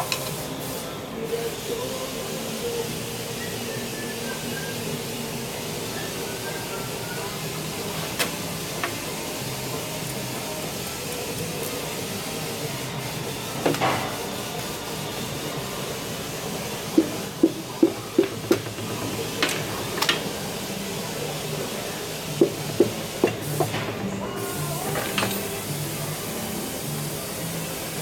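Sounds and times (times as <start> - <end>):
steady shop hum: 0.0 - 28.0
hammer tapping piston: 22.4 - 23.7.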